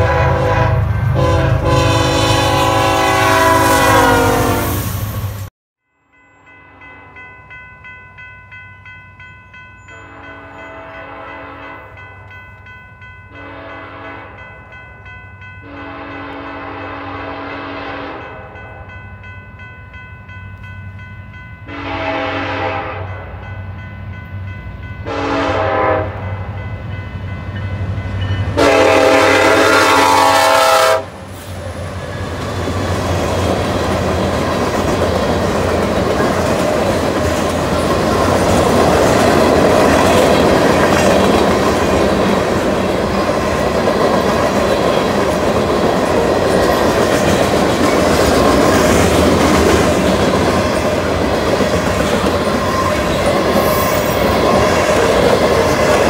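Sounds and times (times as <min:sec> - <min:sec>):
locomotive air horn blasts: 0:00.0 - 0:04.9, 0:10.0 - 0:12.0, 0:13.4 - 0:14.4, 0:15.6 - 0:18.6, 0:21.7 - 0:23.4, 0:25.0 - 0:26.5, 0:28.6 - 0:31.2
crossing bell ringing: 0:05.8 - 0:32.5, 0:33.2 - 0:56.0
train wheels rumbling on rails: 0:09.2 - 0:56.0.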